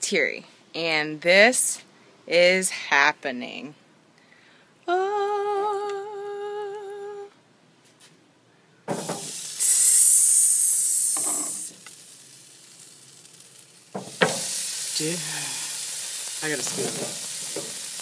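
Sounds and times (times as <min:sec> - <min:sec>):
meat sizzling on a grill: 0:08.9 - 0:18.0.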